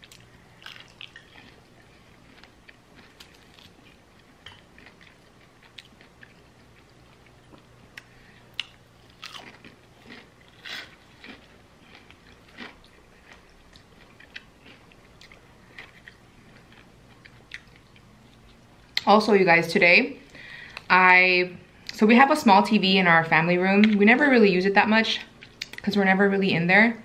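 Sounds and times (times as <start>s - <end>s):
crunching fried chicken: 0.0s - 18.6s.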